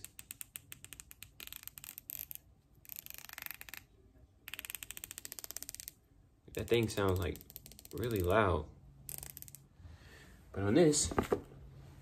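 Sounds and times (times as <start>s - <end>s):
fishing reel clicker ratcheting: 0.1s - 3.9s, 4.5s - 6.0s, 6.6s - 8.4s, 9.1s - 9.6s.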